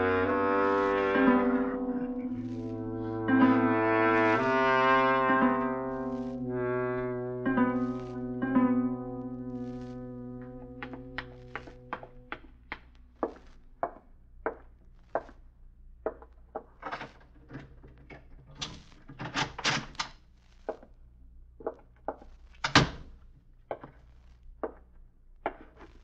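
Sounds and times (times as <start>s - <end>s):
footsteps walking: 2.2s - 3.2s, 5.2s - 15.5s.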